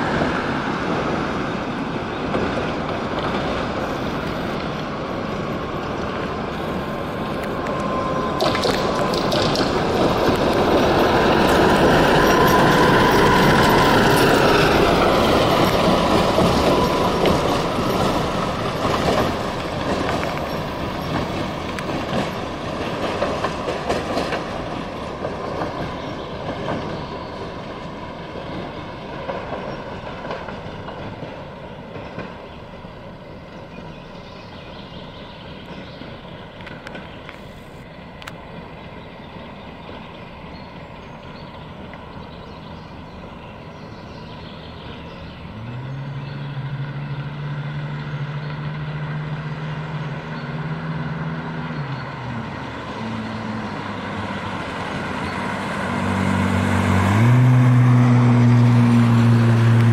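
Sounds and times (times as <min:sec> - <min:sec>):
rail joint clicks: 0:00.0 - 0:45.6
tram motor whine: 0:00.0 - 0:59.9
tram wheels rumbling on rails: 0:00.0 - 0:59.9.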